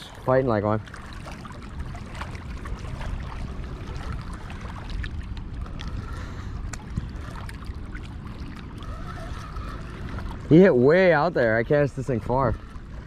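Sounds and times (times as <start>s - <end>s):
water lapping at shore: 0.0s - 13.0s
wind rumble on microphone: 0.0s - 13.0s.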